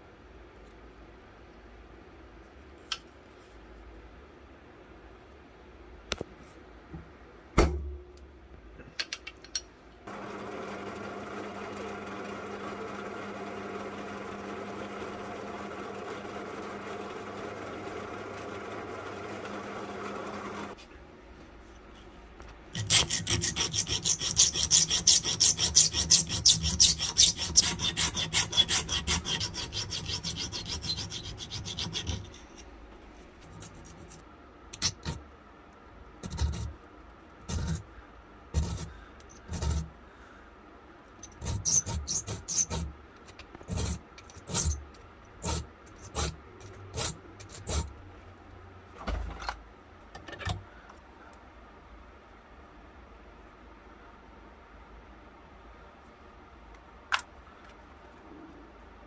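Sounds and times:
hand filing strokes on metal parts: 22.8 - 32.7, 37.5 - 37.9, 38.6 - 39.9, 41.2 - 42.9, 43.7 - 44.8, 45.4 - 47.9.

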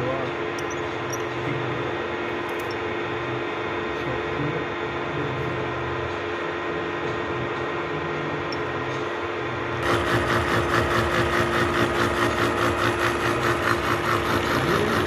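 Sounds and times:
milling machine hum: 0.0 - 15.0
cutter chattering on metal: 9.8 - 15.0.

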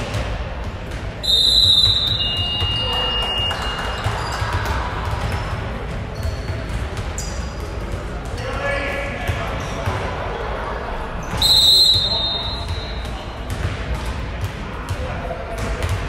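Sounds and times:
basketballs bouncing on wooden floor: 0.0 - 8.5, 12.0 - 16.0.

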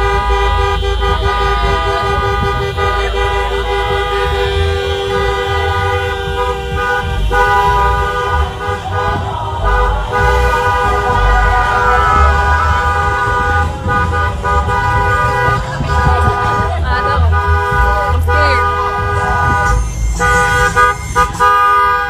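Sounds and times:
car horns blasting: 0.0 - 22.0
rumble of moving vehicles: 0.0 - 22.0.

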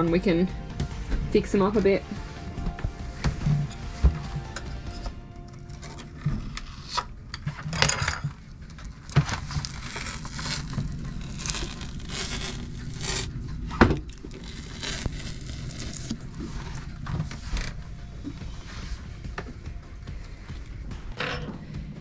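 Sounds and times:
grip tape scraping and peeling: 9.0 - 17.8.

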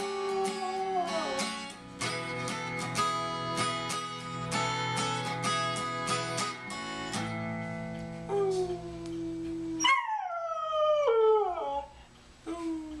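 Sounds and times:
dog howling: 0.0 - 1.6, 8.3 - 11.9
acoustic guitar strumming: 0.0 - 8.8.

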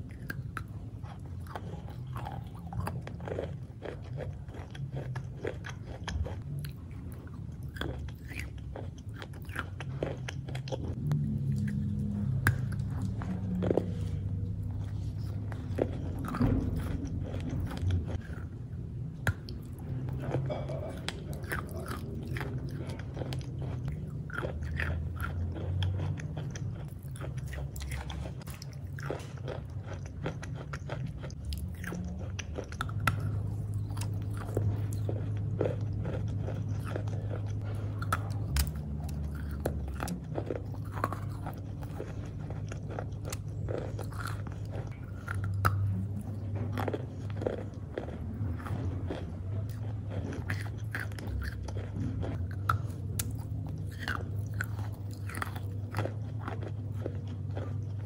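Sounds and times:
chewing crunchy chalk: 0.0 - 58.0
low steady hum: 0.0 - 58.0.

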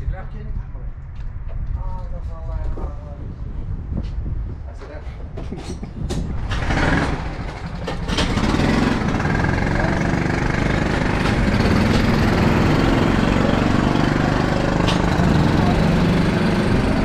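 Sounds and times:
go-kart engine idling: 6.4 - 17.0.

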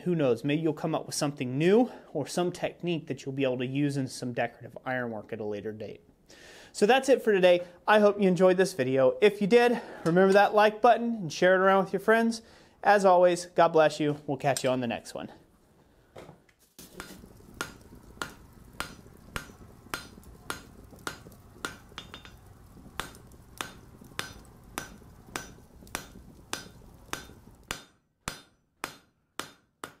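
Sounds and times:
low steady hum: 16.9 - 27.7.

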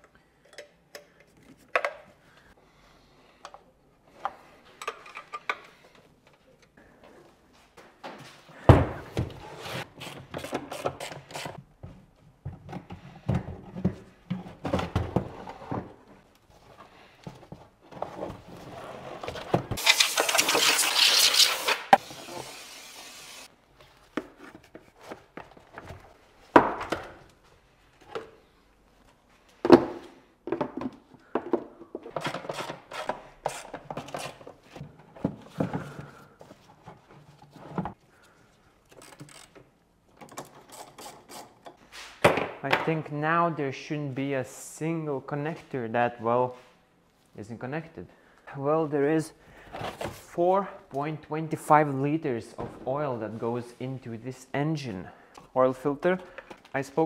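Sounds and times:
spraying hiss: 19.8 - 23.5.

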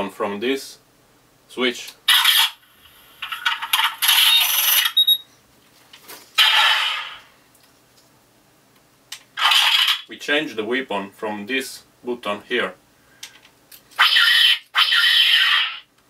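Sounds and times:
electronic blaster sound effects: 2.1 - 2.6, 3.3 - 5.0, 6.4 - 7.3, 9.4 - 10.1, 14.0 - 15.9
short beep: 4.9 - 5.2.

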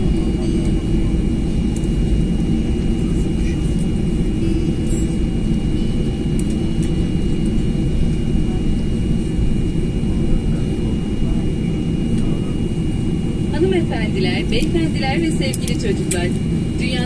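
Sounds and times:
low engine rumble: 0.0 - 17.0
thin steady whine: 0.0 - 17.0.

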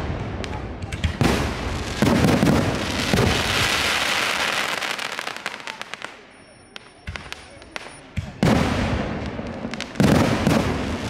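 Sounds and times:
fireworks booming: 0.0 - 6.3, 6.9 - 11.0
fireworks crackling: 0.0 - 11.0
fireworks pops: 0.0 - 11.0.

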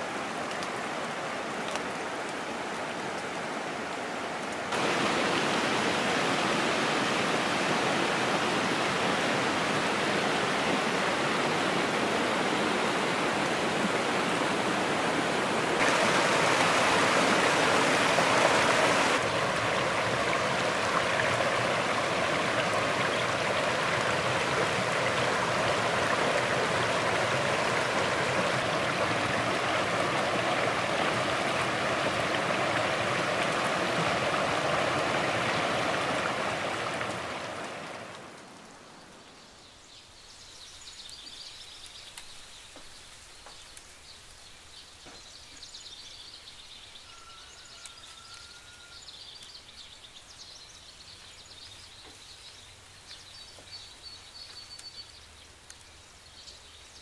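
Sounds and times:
creek rushing over rocks: 0.0 - 38.8.

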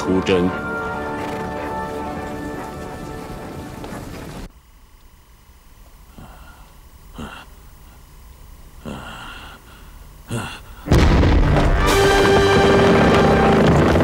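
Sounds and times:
dramatic score music: 0.0 - 4.3, 10.9 - 14.0
man breathing heavily in sleep: 6.1 - 8.0, 8.8 - 10.9
loud boom: 10.9 - 14.0.

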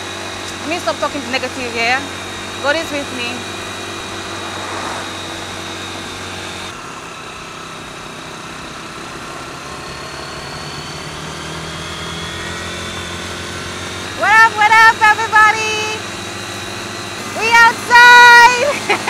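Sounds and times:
motorcycle engine running: 0.0 - 19.0
rushing noise: 2.3 - 7.2.

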